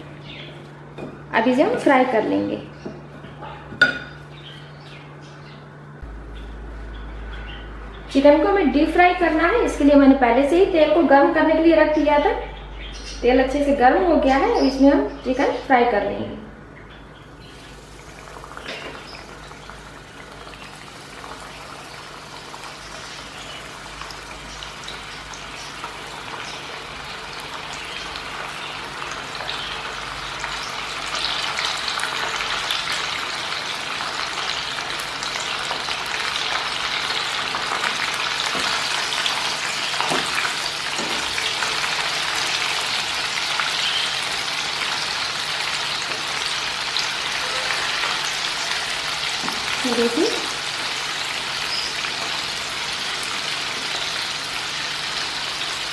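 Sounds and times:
chicken deep-frying in oil: 17.2 - 55.9.

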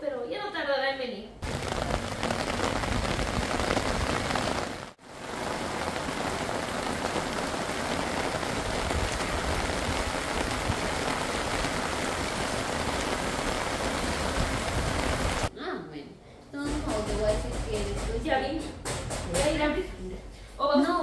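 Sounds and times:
rain falling: 1.4 - 15.5.

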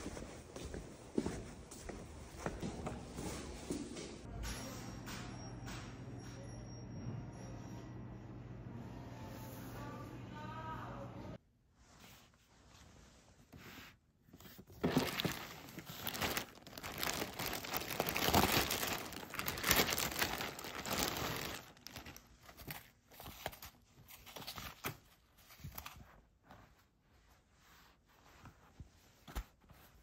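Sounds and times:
plastic wrapping crinkling: 14.5 - 26.2.

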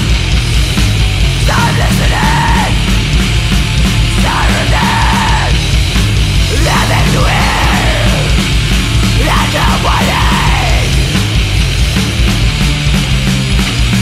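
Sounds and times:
loud punk music: 0.0 - 14.0
shouted vocal: 1.4 - 2.8, 4.1 - 5.6, 6.5 - 8.5, 9.2 - 11.2.

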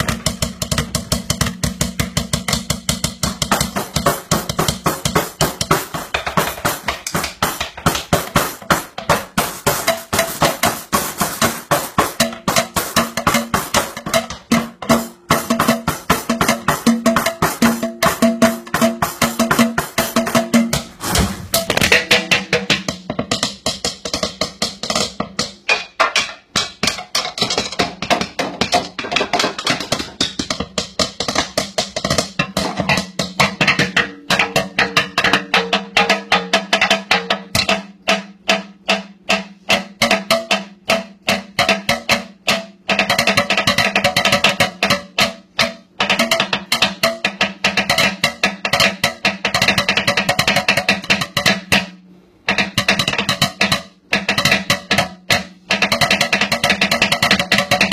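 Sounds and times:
drumming on a kitchen sink: 0.0 - 57.9.

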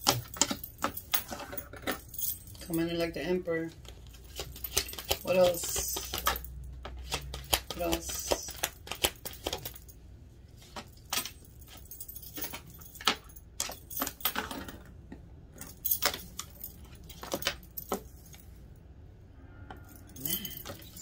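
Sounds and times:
cards shuffled and laid down: 3.8 - 9.7.

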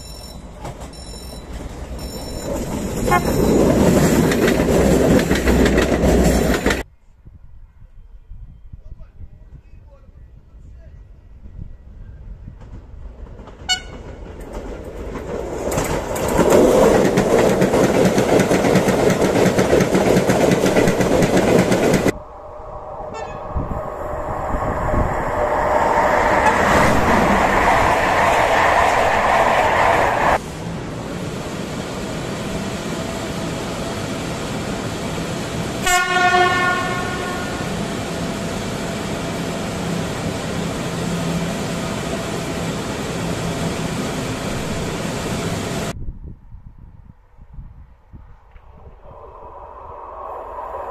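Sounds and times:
locomotive humming: 0.0 - 6.9, 12.7 - 45.9
train passing: 0.0 - 6.9, 11.1 - 46.0, 48.2 - 50.9
train horn: 3.0 - 3.4, 13.7 - 14.1, 23.1 - 23.7, 35.8 - 37.7.

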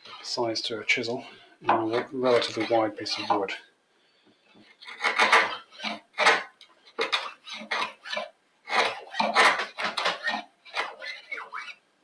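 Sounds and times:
chisel scraping wood: 1.7 - 3.5, 4.7 - 11.8.

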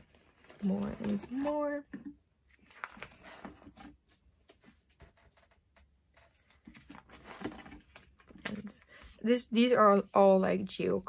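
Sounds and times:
plastic sleeves rustling and clicking: 0.0 - 8.8.

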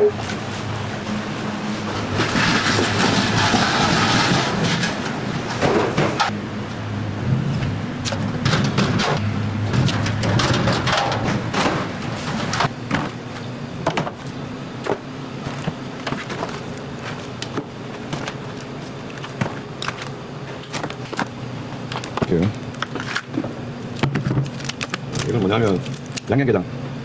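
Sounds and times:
low machine hum: 0.0 - 27.0
crab shells clicking and clattering: 23.9 - 26.3.

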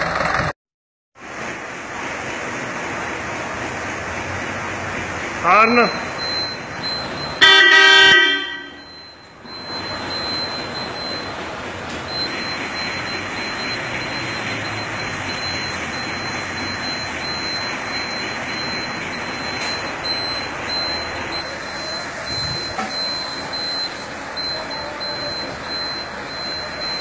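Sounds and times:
tractor horn blast: 7.4 - 8.9.

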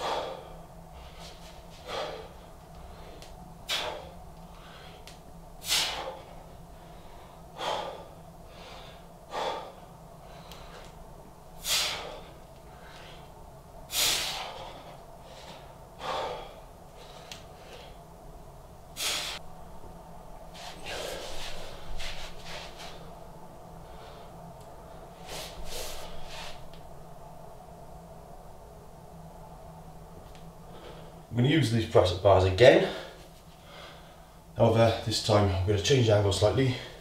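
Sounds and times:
man breathing out sharply: 0.0 - 11.0, 11.6 - 13.3, 13.9 - 18.0, 19.0 - 19.4, 20.6 - 23.1
ragged breathing: 0.0 - 11.0.

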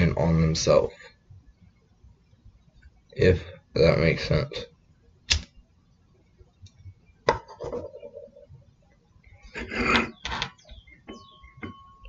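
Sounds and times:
faint steady tone: 10.7 - 12.0.

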